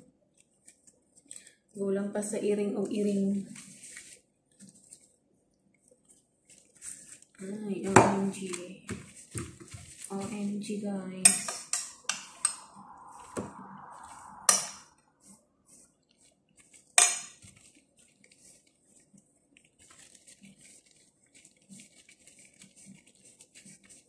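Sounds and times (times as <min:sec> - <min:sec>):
soft rustling and ticking: 0:03.6 - 0:10.8, 0:16.0 - 0:24.0.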